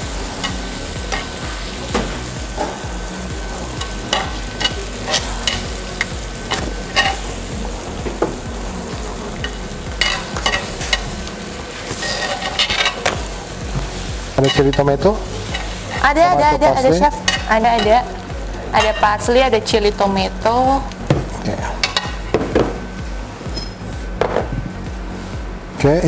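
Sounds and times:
food sizzling: 0.0s - 25.7s
metal tongs clicking on grill pan: 0.4s - 1.4s, 3.8s - 7.3s, 9.4s - 13.2s, 17.2s - 18.1s, 18.8s - 19.2s, 21.8s - 22.2s.

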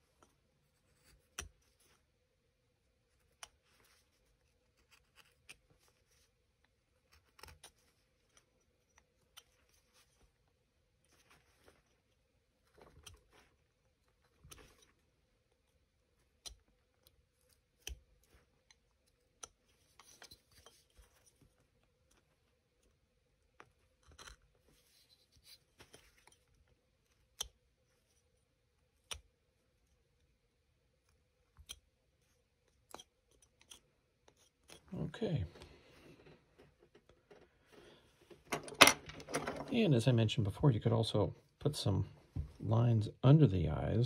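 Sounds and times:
knife carving wood: 0.8s - 2.0s, 3.0s - 30.3s, 30.9s - 34.9s.

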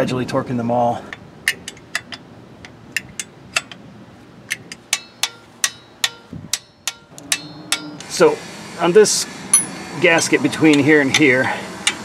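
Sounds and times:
torque wrench clicking: 10.7s - 12.0s.

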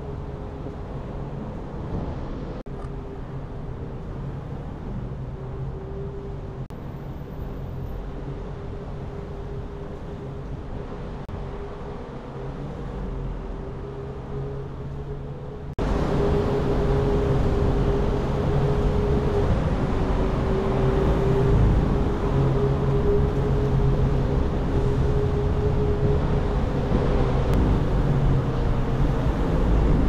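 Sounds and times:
car engine and road hum: 0.0s - 30.0s.

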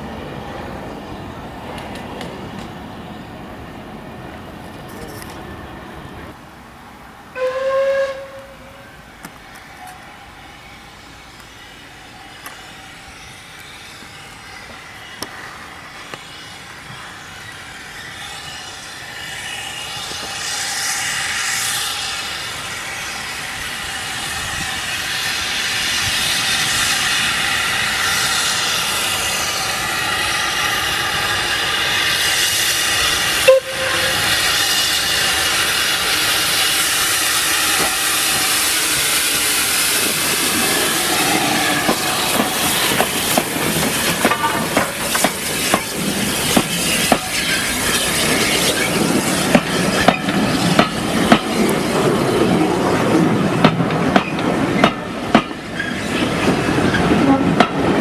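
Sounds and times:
steam engine hiss and exhaust: 0.0s - 58.0s
steam locomotive whistle: 7.3s - 9.0s, 31.6s - 40.0s, 44.2s - 45.2s, 57.0s - 57.9s.

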